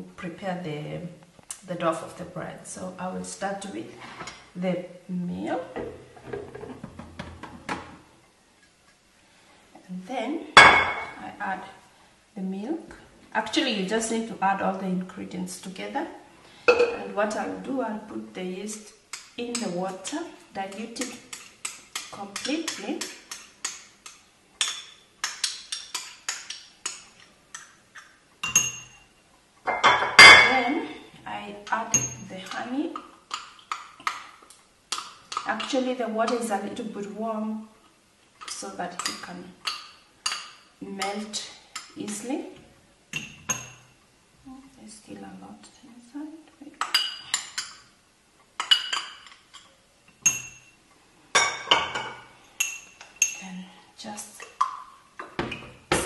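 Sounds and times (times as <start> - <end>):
metal spoon clinking against glass: 28.4 - 29.0, 31.9 - 32.2, 50.2 - 50.8, 52.6 - 53.4.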